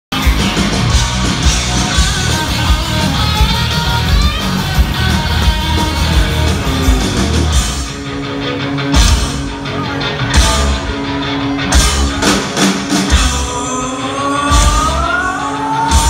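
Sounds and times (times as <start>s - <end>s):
live hard rock band: 0.1s - 16.0s.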